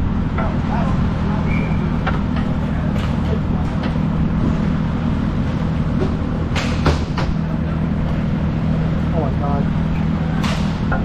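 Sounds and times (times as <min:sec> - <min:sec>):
rink hall hum: 0:00.0 - 0:11.0.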